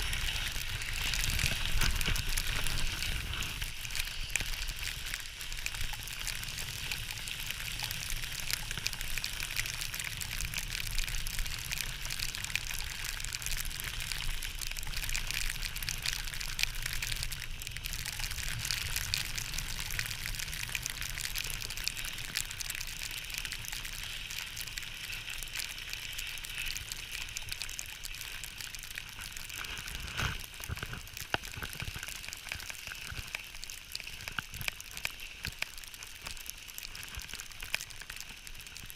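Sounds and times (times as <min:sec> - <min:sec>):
skis scraping over snow: 0:00.0 - 0:05.4.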